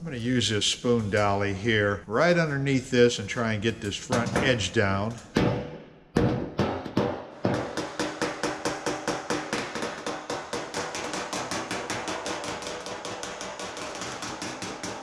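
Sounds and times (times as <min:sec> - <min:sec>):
hammer striking sheet metal: 0:04.0 - 0:15.0.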